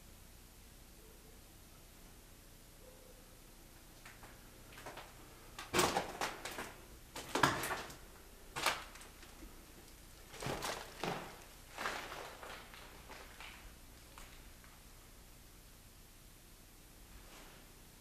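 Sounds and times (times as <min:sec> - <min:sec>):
footsteps on gritty floor: 0:10.3 - 0:14.5.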